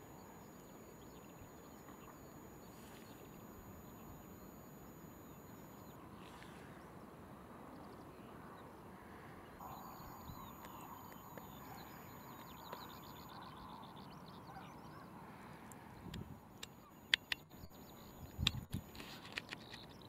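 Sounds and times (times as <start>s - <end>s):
background hiss: 0.0s - 14.0s
faint high chirps and ticks: 0.0s - 20.0s
faint hum: 0.0s - 20.0s.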